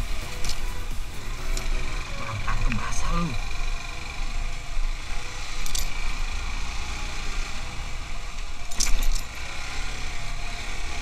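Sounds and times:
motorcycle engine running: 0:00.0 - 0:11.0
rattling clicks: 0:08.6 - 0:09.4.

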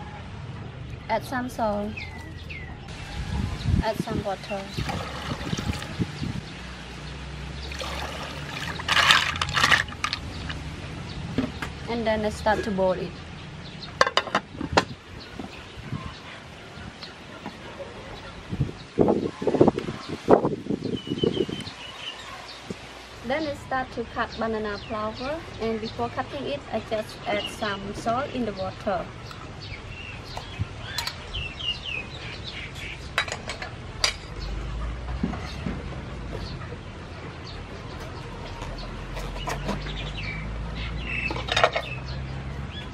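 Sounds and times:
birds chirping: 0:00.0 - 0:42.9
water pouring into a pot: 0:04.7 - 0:06.0, 0:07.7 - 0:10.2.

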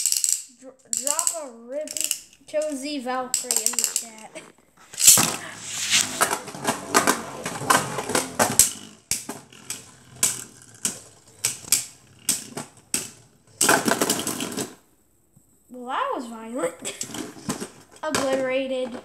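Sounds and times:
spinning tops clacking: 0:00.0 - 0:04.2, 0:05.0 - 0:14.8.

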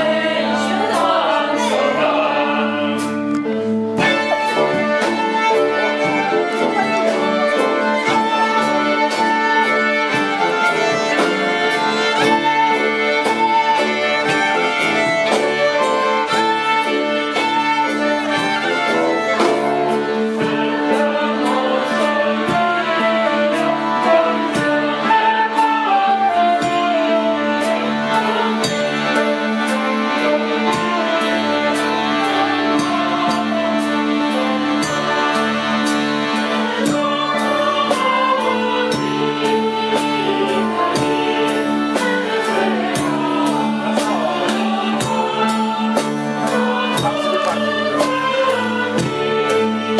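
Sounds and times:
accordion: 0:00.0 - 0:49.9
flute melody: 0:00.0 - 0:49.9
violin melody: 0:00.0 - 0:49.9
steady beat: 0:44.1 - 0:49.6.

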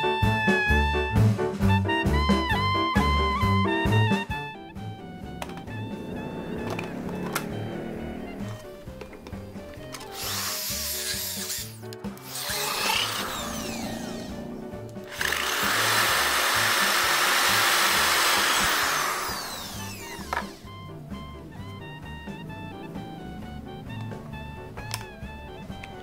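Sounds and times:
background music: 0:00.0 - 0:26.0
drill press cutting metal: 0:10.0 - 0:14.3, 0:15.1 - 0:20.7.

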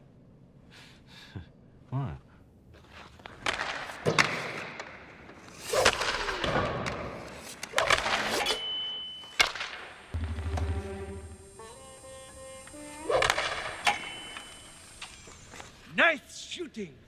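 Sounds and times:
puck hitting boards: 0:03.4 - 0:05.0
music with low drone: 0:10.2 - 0:13.7.

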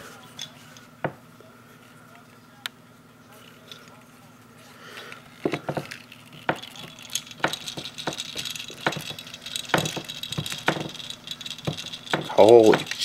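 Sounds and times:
toy pieces clicking and knocking: 0:05.1 - 0:13.0.

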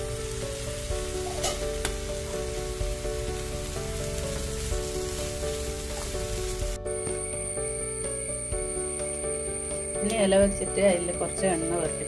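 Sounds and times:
food sizzling in a frying pan: 0:00.0 - 0:07.8
background music: 0:00.0 - 0:12.0.

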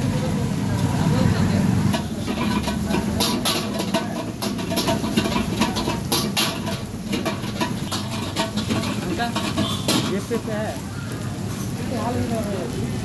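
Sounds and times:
cooking tools clacking: 0:01.8 - 0:10.6.

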